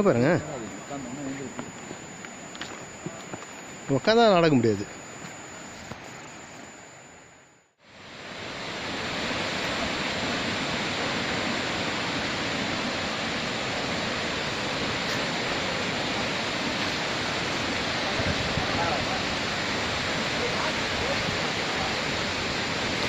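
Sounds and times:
waterfall rushing: 8.1 - 23.0.

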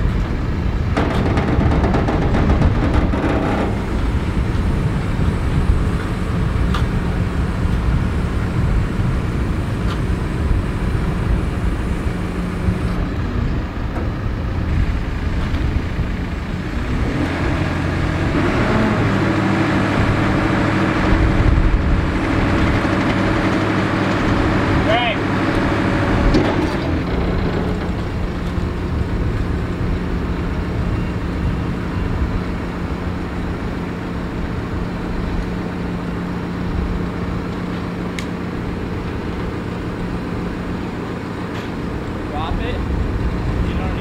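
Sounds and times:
diesel engine running: 0.0 - 44.0.

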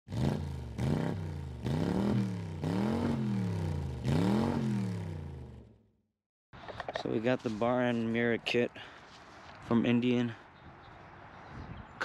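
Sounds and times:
motorcycle engine revving: 0.1 - 6.0.

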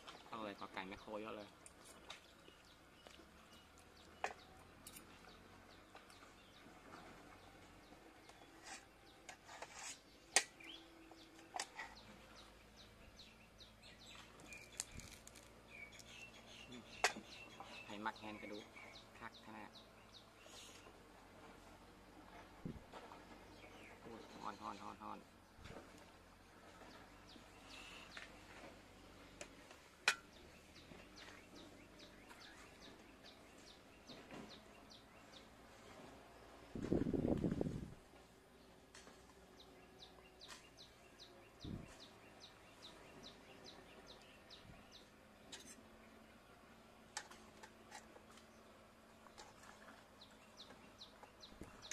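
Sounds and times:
faint bird chirps: 7.3 - 21.0, 26.8 - 28.6, 30.2 - 35.5
forks scraping on enamel plate: 8.5 - 10.5.

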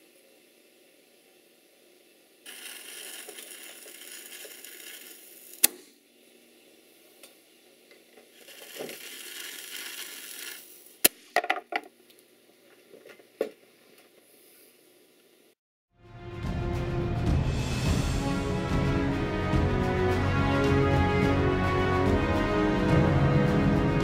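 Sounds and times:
fuse hissing: 2.5 - 6.0, 8.3 - 11.0.

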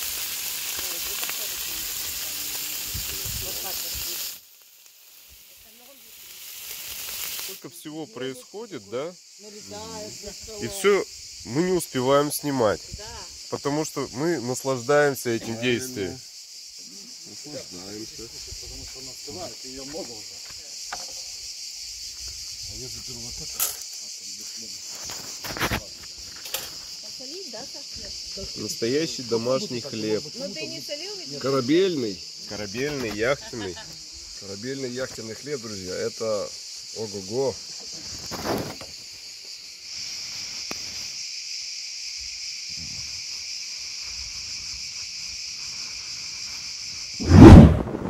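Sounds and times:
cicadas shrilling: 0.0 - 48.0
insect chorus chirring: 0.0 - 48.0.

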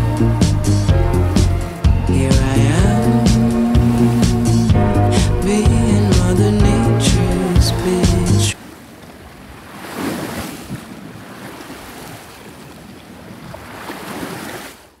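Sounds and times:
waves washing in: 0.1 - 15.0
wind: 8.5 - 15.0.

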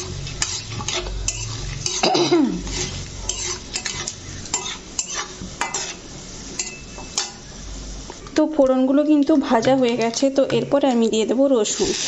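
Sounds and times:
metal spatula scraping metal pan: 0.0 - 7.5
oil sizzling: 0.0 - 12.0.

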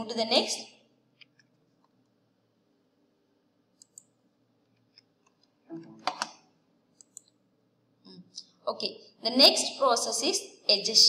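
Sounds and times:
computer mouse clicks: 3.7 - 7.4.

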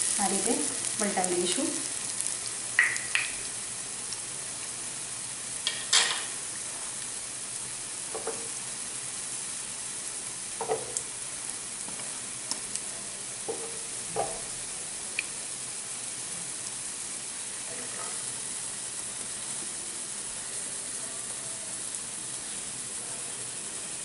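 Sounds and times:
oil sizzling in a pan: 0.0 - 24.0
sharp pops and crackles: 2.7 - 3.5.

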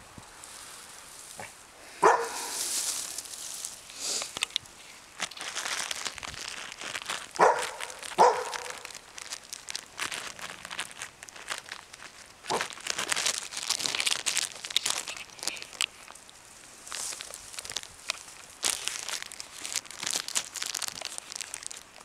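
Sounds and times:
dry grass and leaves rustling: 0.0 - 22.0
dog barking: 2.0 - 2.5, 7.4 - 8.8.

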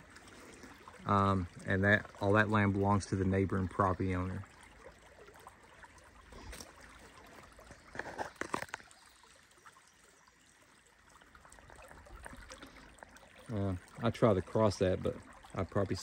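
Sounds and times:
creek trickling over rocks: 0.0 - 16.0
short knocks and scrapes: 7.8 - 8.8.

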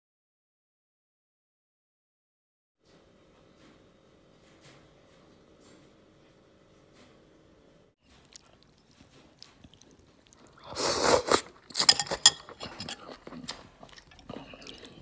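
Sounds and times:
wet chewing: 8.0 - 15.0
loud noodle slurp: 10.4 - 13.6.

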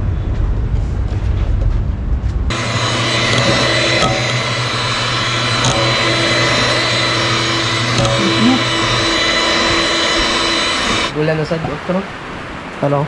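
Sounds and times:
electric hand mixer whirring: 2.5 - 11.1.

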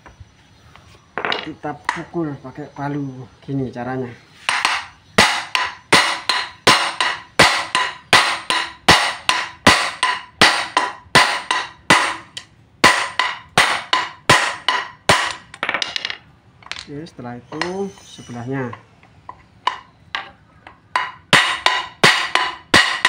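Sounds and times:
hammer striking steel: 4.5 - 15.7, 17.5 - 18.9, 19.7 - 23.0.

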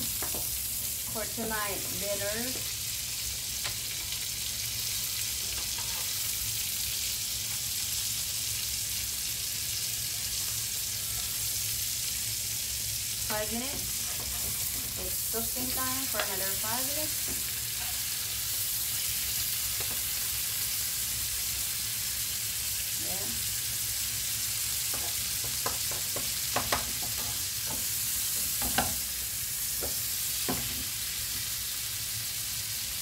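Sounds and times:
steaks sizzling in a pan: 0.0 - 33.0
utensil tapping a pan: 24.9 - 27.8.

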